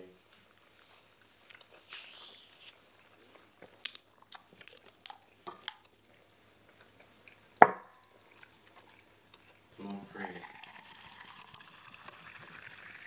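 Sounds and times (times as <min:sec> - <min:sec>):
people chewing food: 0:00.3 - 0:10.1.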